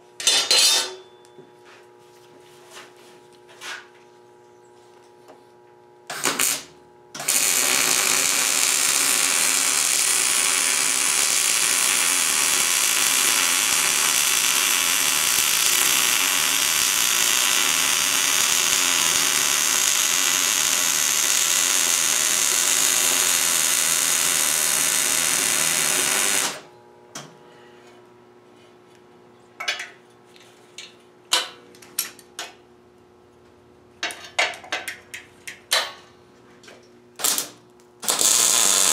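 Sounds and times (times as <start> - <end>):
welding arc crackling: 6.1 - 26.7, 37.2 - 38.9.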